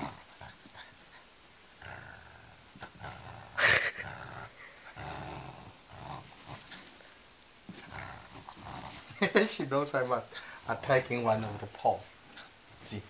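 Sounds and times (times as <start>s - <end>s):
dog growling in play: 0.0s - 0.8s, 1.8s - 7.1s, 7.7s - 9.7s.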